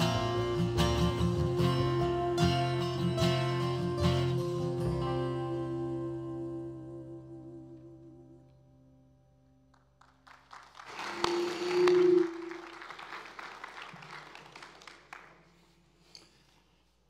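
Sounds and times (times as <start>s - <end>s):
acoustic band chord: 0.0s - 8.4s
crowd applause: 10.0s - 15.7s
person cheering: 10.9s - 13.0s.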